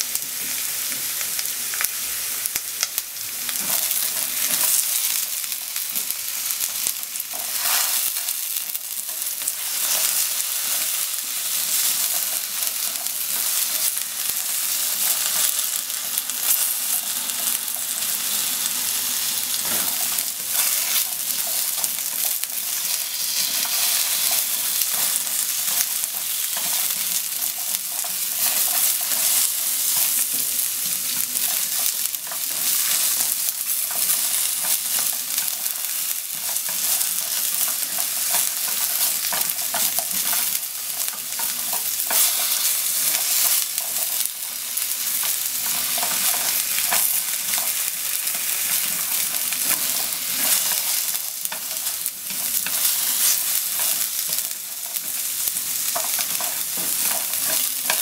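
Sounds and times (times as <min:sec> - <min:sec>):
potatoes sizzling in oil: 0:00.0 - 0:58.0.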